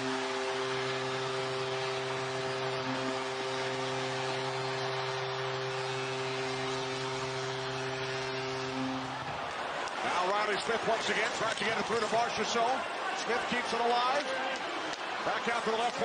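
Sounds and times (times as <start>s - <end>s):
arena goal horn: 0.0s - 11.6s
crowd cheering: 0.0s - 16.0s.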